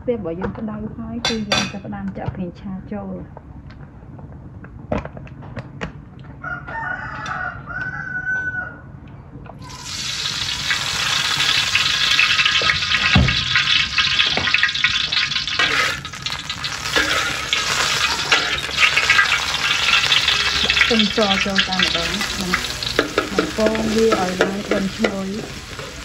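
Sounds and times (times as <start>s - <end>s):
rooster crowing: 6.4s - 9.0s
oil sizzling in a wok: 9.6s - 26.0s
spatula clinking on wok: 15.6s - 25.6s.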